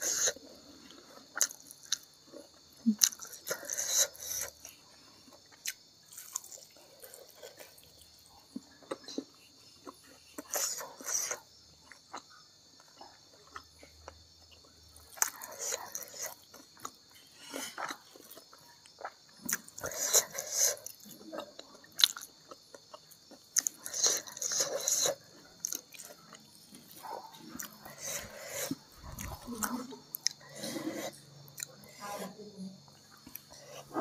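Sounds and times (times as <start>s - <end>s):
close-up chewing and mouth sounds: 0.0s - 32.2s, 32.8s - 34.0s.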